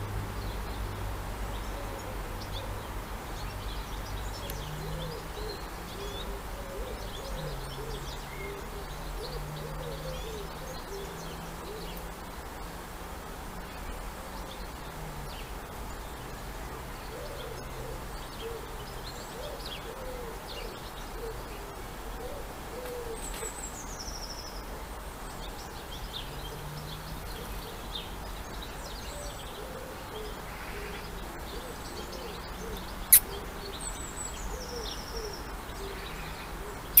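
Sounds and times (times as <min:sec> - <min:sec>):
low repeated bird calls: 0:01.5 - 0:12.7.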